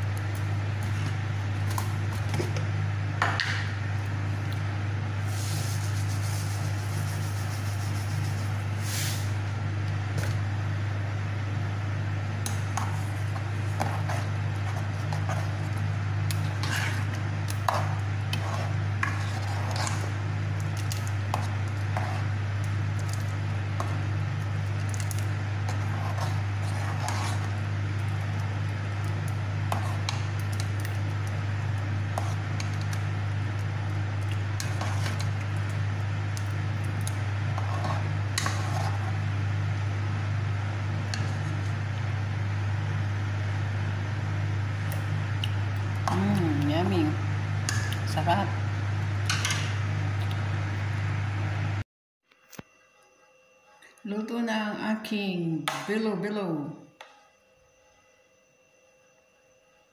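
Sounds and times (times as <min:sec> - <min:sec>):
steady low hum: 0:00.0 - 0:51.8
ladle stirring in metal pot: 0:12.5 - 0:33.0, 0:34.2 - 0:35.8, 0:36.4 - 0:39.2.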